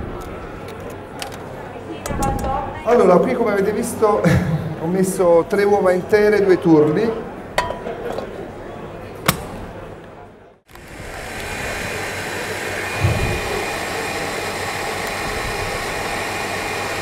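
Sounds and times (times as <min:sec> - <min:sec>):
stand mixer motor whisking: 0:10.7 - 0:17.0.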